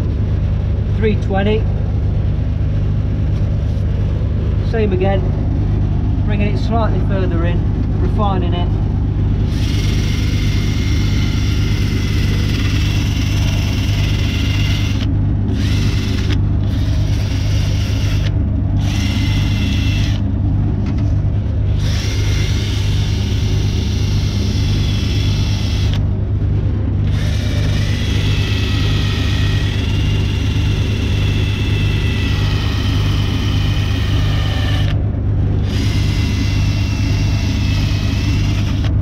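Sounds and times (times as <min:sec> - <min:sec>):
cordless drill motor hum: 0:09.4 - 0:21.0, 0:21.7 - 0:26.1, 0:27.0 - 0:39.0.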